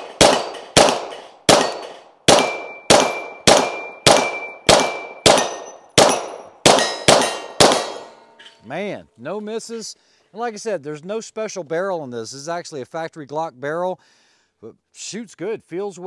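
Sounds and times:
pistol shots: 0.0 - 8.2
steel plate clanging: 0.0 - 8.6.

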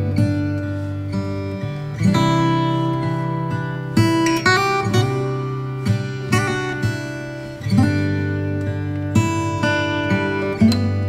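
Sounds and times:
acoustic guitar strumming chords: 0.0 - 11.0.

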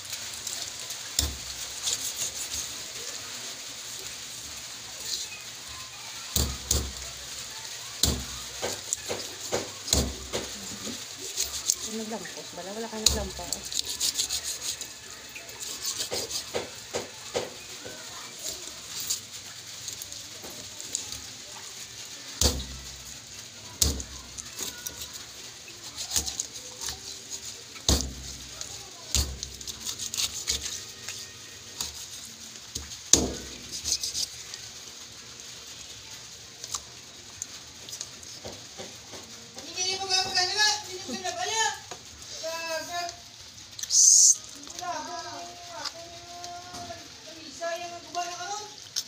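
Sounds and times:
knife cutting fish on board: 13.0 - 14.8, 15.6 - 17.6, 25.9 - 26.5, 29.1 - 30.8.

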